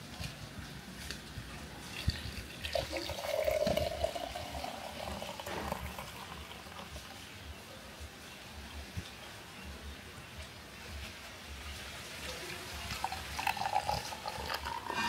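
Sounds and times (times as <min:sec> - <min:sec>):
liquid pouring: 0:01.8 - 0:07.2, 0:12.5 - 0:15.0.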